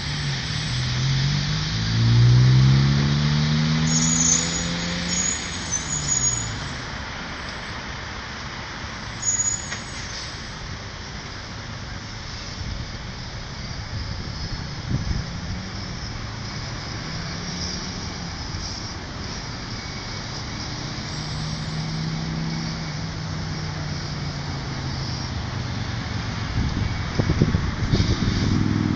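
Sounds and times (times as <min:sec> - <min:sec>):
cars driving past: 0:00.0 - 0:28.9
low engine drone: 0:10.0 - 0:28.9.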